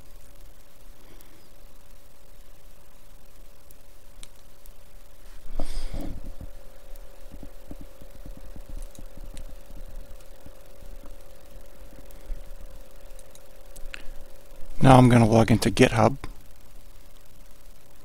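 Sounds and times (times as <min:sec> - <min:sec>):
faint steady tone: 0:00.0 - 0:18.0
rustling brush: 0:05.2 - 0:14.9
soft low knocks: 0:05.5 - 0:13.1.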